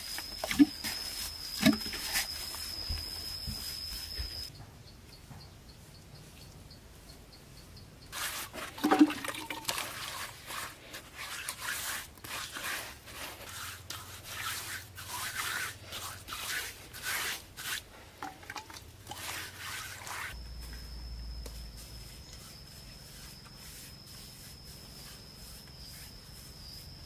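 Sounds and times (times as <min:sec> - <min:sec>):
rough scraping strokes: 0:09.7 - 0:18.2, 0:19.0 - 0:20.4, 0:21.5 - 0:27.0.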